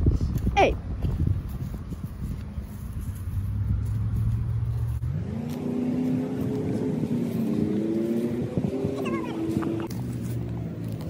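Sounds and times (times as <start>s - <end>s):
motor engine running and revving: 2.7s - 11.0s.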